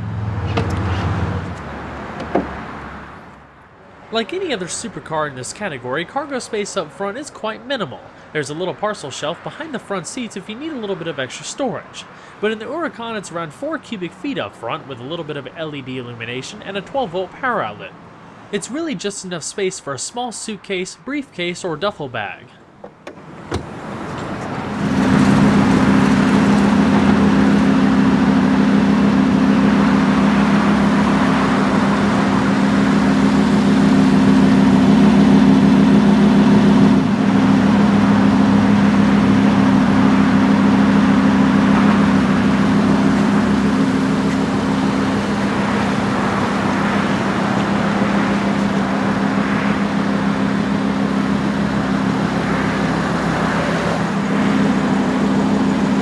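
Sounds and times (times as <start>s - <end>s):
car engine droning: 0.0s - 7.0s, 22.8s - 56.0s.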